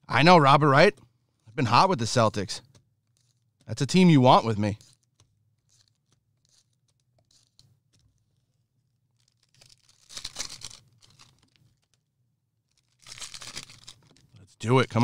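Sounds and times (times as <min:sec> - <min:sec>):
foil wrapper ripping: 0:04.8 - 0:07.6, 0:09.1 - 0:12.0, 0:12.7 - 0:14.2.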